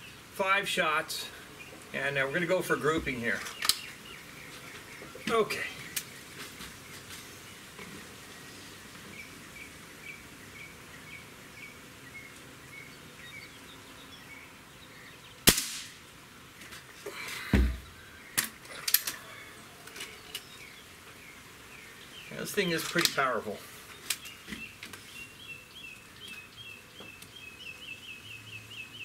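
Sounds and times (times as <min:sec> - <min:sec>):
air rifle shot: 0:15.5 - 0:16.0
dull knock: 0:17.5 - 0:17.9.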